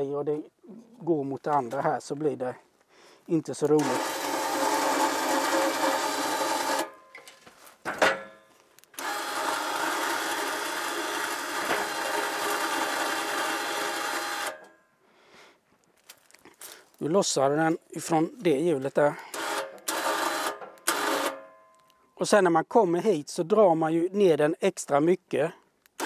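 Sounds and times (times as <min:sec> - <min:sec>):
electric winch whining: 0:03.8 - 0:07.0, 0:09.0 - 0:14.7, 0:19.3 - 0:21.4.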